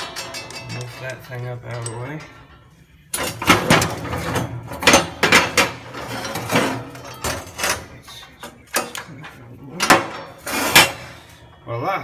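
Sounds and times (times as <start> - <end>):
steel plate clanking and scraping: 0.0 - 11.4.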